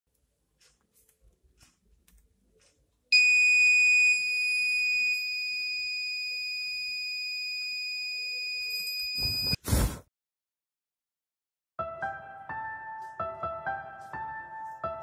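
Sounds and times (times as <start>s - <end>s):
high-pitched buzzer tone: 3.2s - 9.6s
brief rush of noise: 9.2s - 10.1s.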